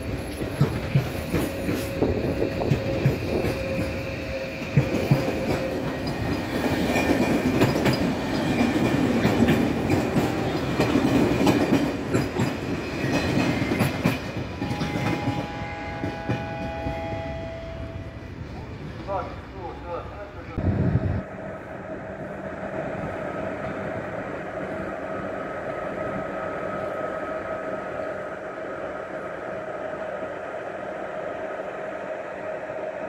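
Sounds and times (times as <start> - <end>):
wheels clicking over rail joints: 0.0 - 16.9
train rumble: 0.0 - 33.0.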